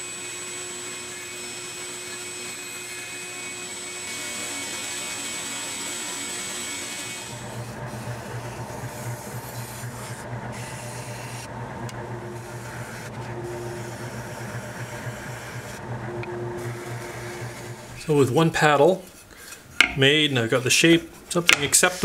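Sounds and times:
spindle sander humming: 0:00.0 - 0:19.0
wood rasping on sanding drum: 0:07.1 - 0:19.2, 0:21.4 - 0:22.0.

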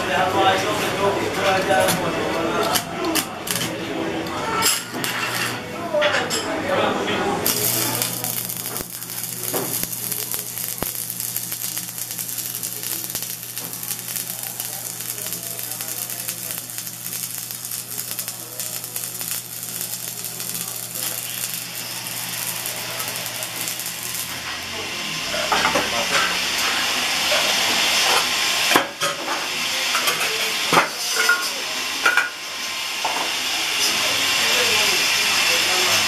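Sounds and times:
welding arc crackling and hissing: 0:07.4 - 0:29.0.

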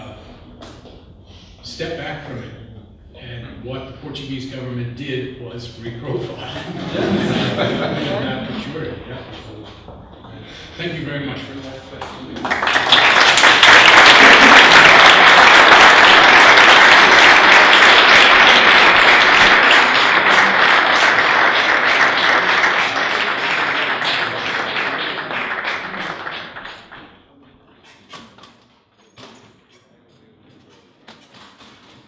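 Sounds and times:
audience applauding: 0:12.0 - 0:27.2.

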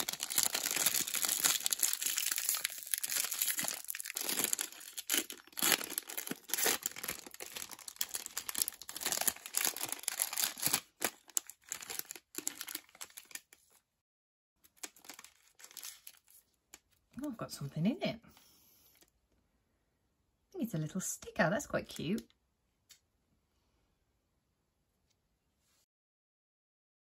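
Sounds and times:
plastic wrapper crinkling: 0:00.0 - 0:13.8, 0:14.6 - 0:17.0.

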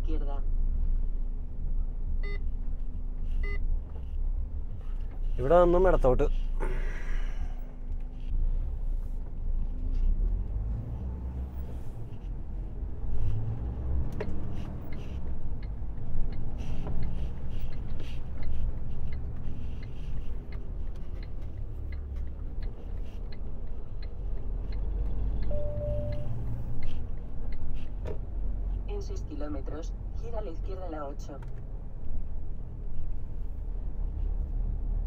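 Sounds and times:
truck engine rumble: 0:00.0 - 0:35.0
turn indicator ticking: 0:13.4 - 0:28.2
short beep: 0:25.5 - 0:26.4.

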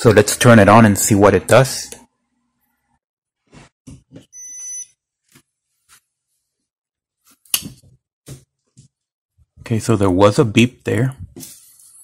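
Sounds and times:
coffee maker beep: 0:04.3 - 0:05.0.

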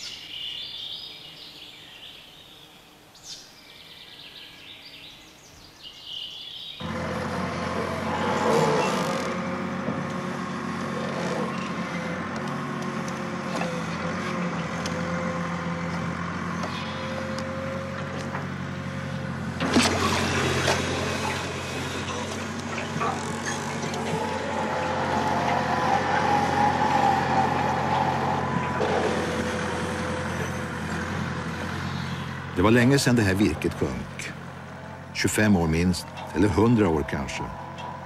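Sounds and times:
crane engine running: 0:06.8 - 0:38.0
high whine: 0:22.1 - 0:30.7.

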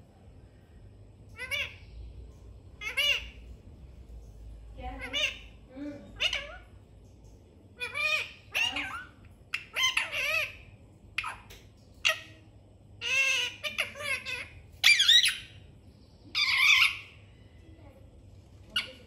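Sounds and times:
parakeet squawking calls: 0:01.3 - 0:01.9, 0:02.8 - 0:03.4, 0:04.9 - 0:05.6, 0:06.2 - 0:06.8, 0:07.8 - 0:12.4, 0:13.0 - 0:15.6, 0:16.3 - 0:17.2.

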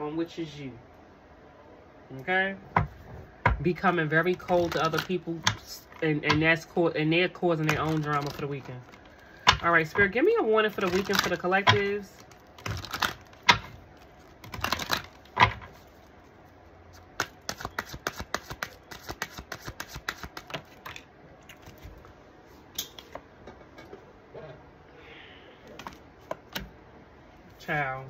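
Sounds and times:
cards slapping: 0:04.2 - 0:06.4, 0:07.5 - 0:09.9, 0:10.7 - 0:15.9, 0:16.9 - 0:21.0, 0:25.7 - 0:26.7
cards shuffling snapping clicks: 0:10.8 - 0:11.8, 0:12.6 - 0:13.7, 0:14.4 - 0:15.2, 0:17.2 - 0:21.0.

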